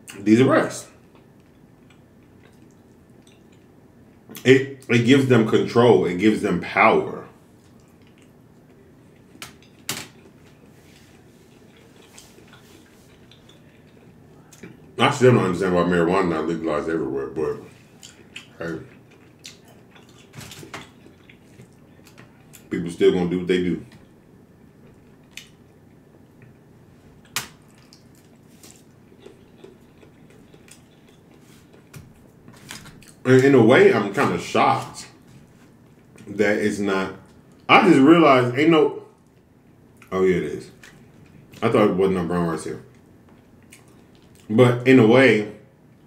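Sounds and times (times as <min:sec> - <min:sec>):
chewing and mouth sounds: 0:01.0 - 0:04.4, 0:07.6 - 0:15.0, 0:17.8 - 0:22.7, 0:23.9 - 0:26.6, 0:27.2 - 0:33.3, 0:42.9 - 0:44.5.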